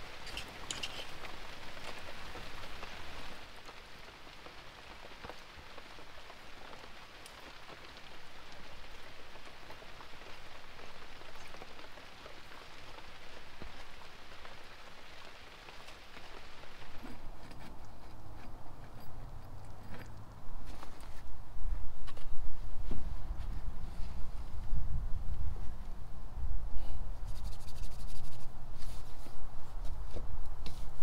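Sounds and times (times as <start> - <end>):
rain on a tarp: 0.0 - 17.6, 27.3 - 29.3.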